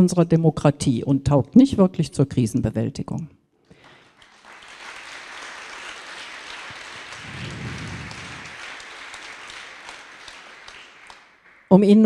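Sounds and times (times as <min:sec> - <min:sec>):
large audience applauding: 0:03.7 - 0:12.0.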